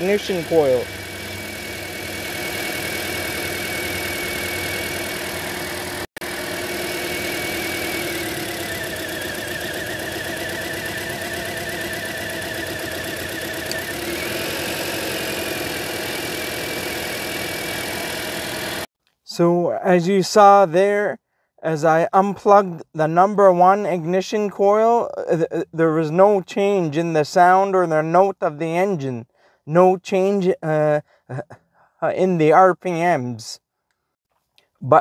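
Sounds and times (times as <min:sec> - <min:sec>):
car engine idling: 0:00.0 - 0:18.8.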